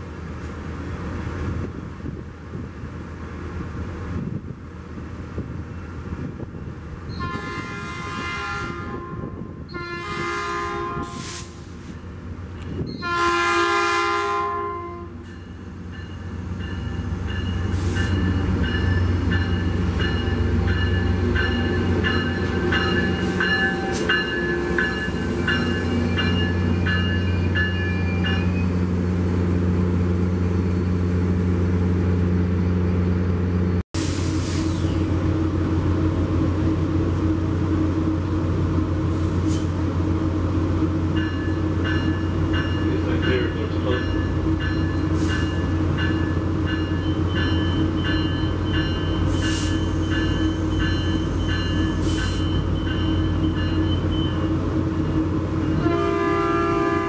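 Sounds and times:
locomotive horn blasts: 7.1s - 11.5s, 13.0s - 15.2s, 55.7s - 57.0s.

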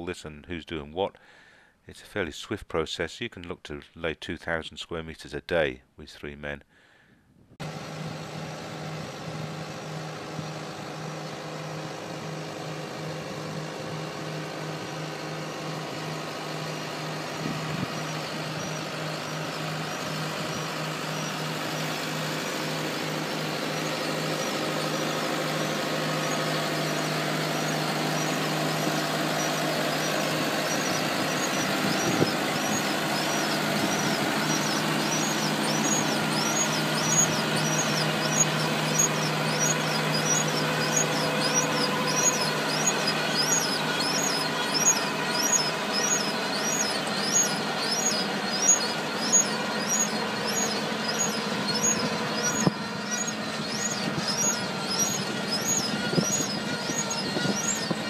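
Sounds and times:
tractor diesel engine running: 7.6s - 58.0s
fast high-pitched squeak: 17.4s - 58.0s.

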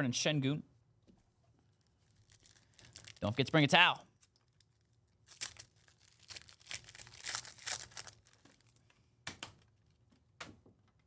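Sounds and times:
foil wrapper tearing and crinkling: 2.0s - 3.4s, 4.2s - 8.8s.

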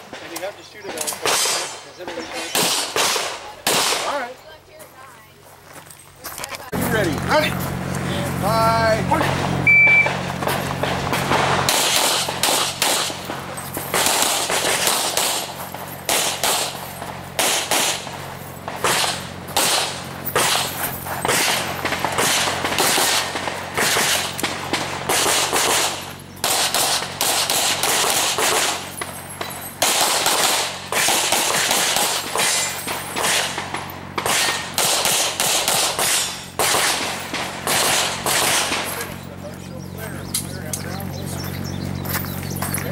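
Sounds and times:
rapid handgun shots: 0.0s - 4.2s, 10.0s - 39.1s.

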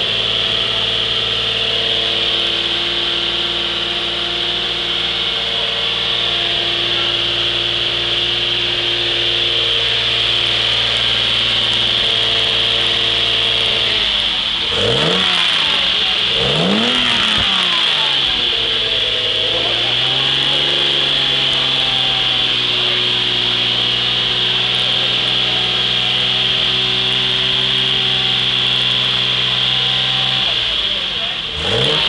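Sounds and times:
car engine idling and revving: 0.0s - 32.0s.

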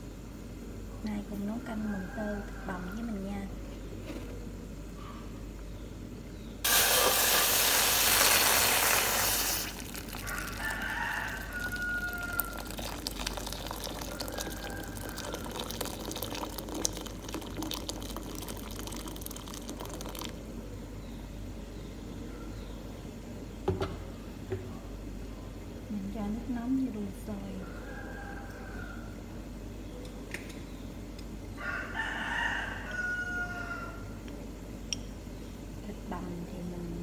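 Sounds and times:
water pouring into metal pot: 6.7s - 20.4s
knocks: 23.6s - 24.8s.

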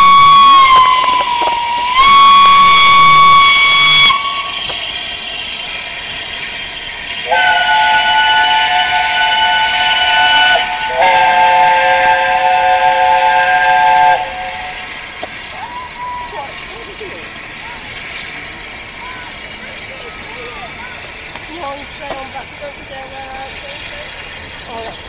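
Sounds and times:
steam locomotive whistle: 0.0s - 5.6s, 7.2s - 15.0s
steam hissing: 0.0s - 25.0s.

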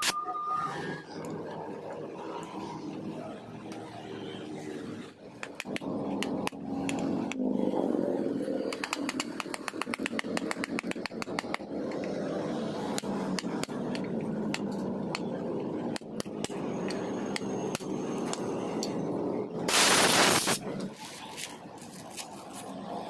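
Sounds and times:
metal tool clicks and taps: 5.4s - 7.4s, 8.7s - 12.1s, 13.0s - 15.3s.

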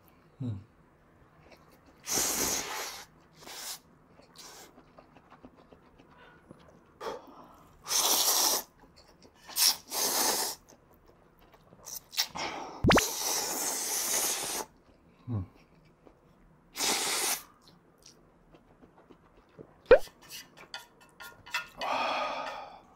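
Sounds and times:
person slurping noodles: 7.8s - 8.8s, 9.5s - 10.7s, 12.2s - 14.7s, 16.8s - 17.5s.

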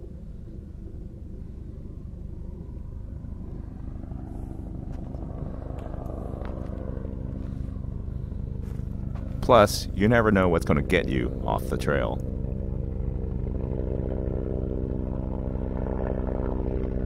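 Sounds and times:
vehicle engine droning: 0.0s - 17.0s
footsteps on dirt trail: 4.4s - 9.5s.

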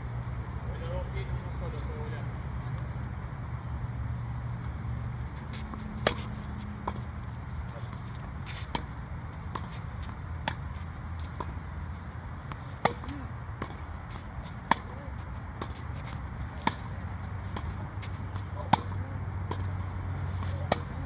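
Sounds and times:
tennis ball bouncing: 4.6s - 21.0s
tennis ball off rackets: 4.6s - 21.0s.

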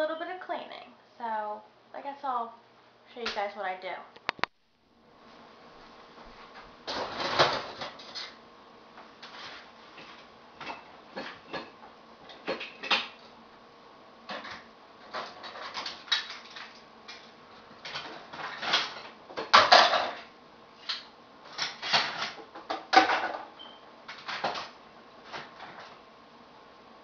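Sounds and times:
dishes and utensils clattering: 9.2s - 13.2s, 17.8s - 20.3s, 21.6s - 24.7s.

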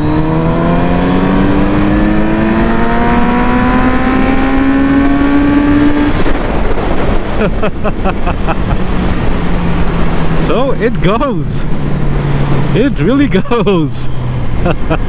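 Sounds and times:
motorcycle engine accelerating: 0.0s - 15.0s
rushing noise: 4.8s - 15.0s.

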